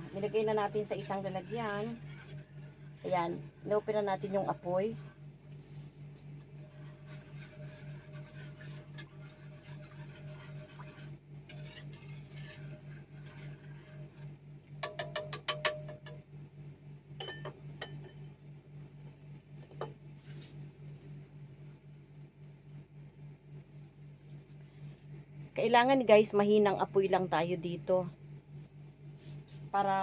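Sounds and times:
whisk clicking against pan: 0.0 - 3.5, 6.5 - 16.2
whisk scraping and swishing in pan: 0.0 - 16.1, 20.0 - 20.7, 29.1 - 30.0
steady low hum: 0.0 - 30.0.

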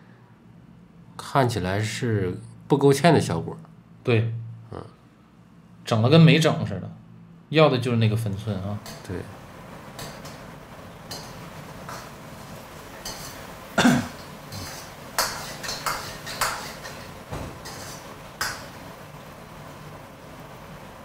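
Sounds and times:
metal ladle scraping a wok: 10.0 - 18.8.

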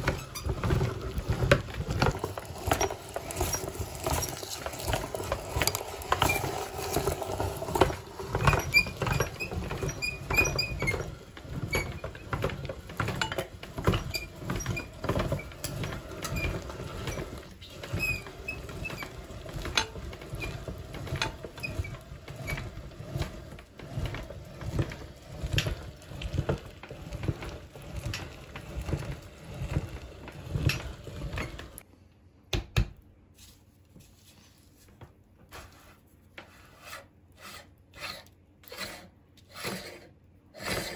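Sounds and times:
meat grinder crunching ice pops: 0.0 - 31.8.

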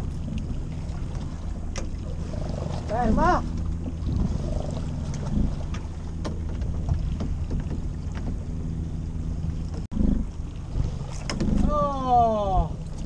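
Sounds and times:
outboard motor idling: 0.0 - 13.0
wind on microphone: 0.0 - 13.0
light knocks and clicks: 5.1 - 8.5.

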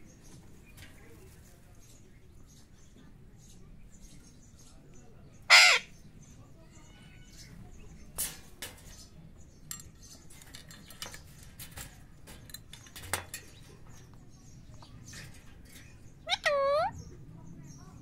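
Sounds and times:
parakeet climbing wire cage: 8.2 - 16.7.

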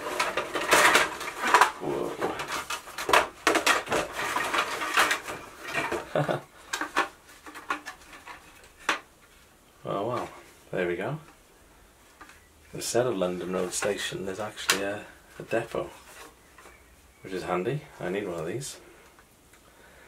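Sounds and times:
plastic parts clattering in a box: 0.0 - 9.1.

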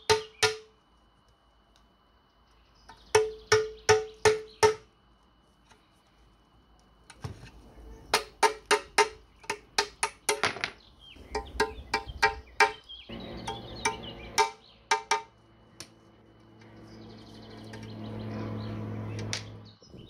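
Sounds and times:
hammer striking metal punch: 3.1 - 4.9, 13.4 - 15.3.

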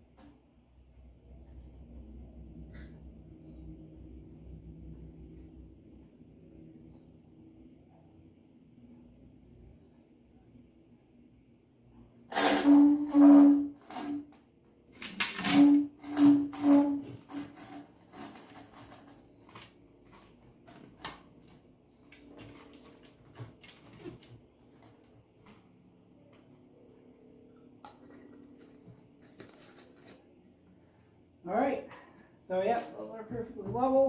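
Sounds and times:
plastic pipe squealing: 12.3 - 14.4, 15.3 - 18.9.

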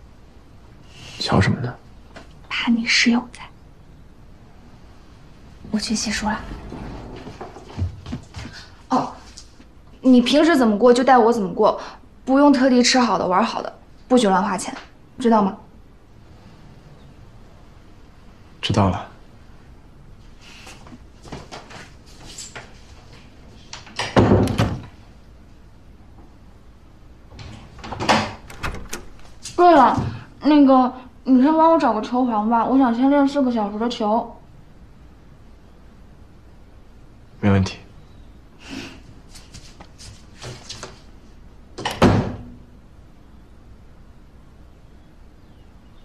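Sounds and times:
door thud: 24.0 - 24.9, 27.8 - 30.2, 41.8 - 42.5
soft scuffs and rustles: 39.1 - 41.2.

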